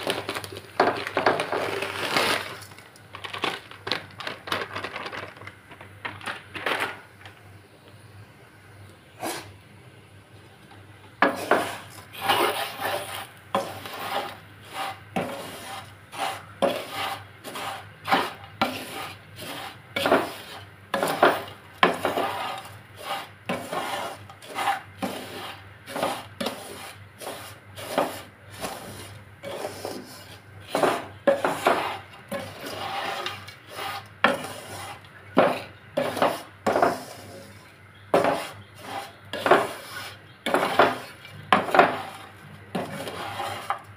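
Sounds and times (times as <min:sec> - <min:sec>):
utensil scraping metal pot: 0:11.2 - 0:43.9.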